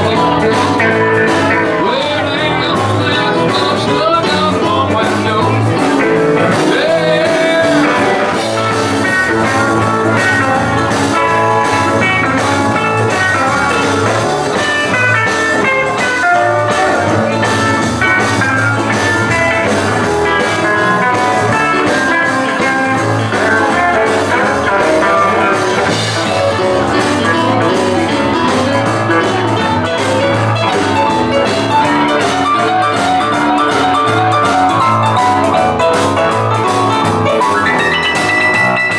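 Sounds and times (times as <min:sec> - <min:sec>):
person singing: 0:00.0 - 0:38.9
rockabilly band playing: 0:00.0 - 0:38.9.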